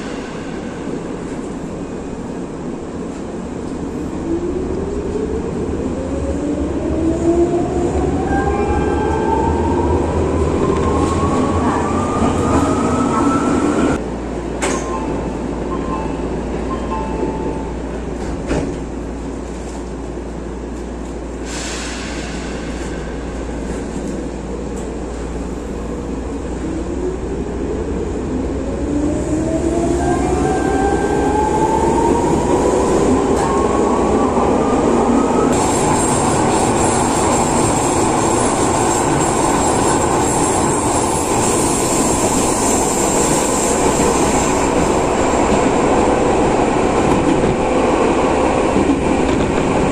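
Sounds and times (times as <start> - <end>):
train running noise: 0.0 - 49.9.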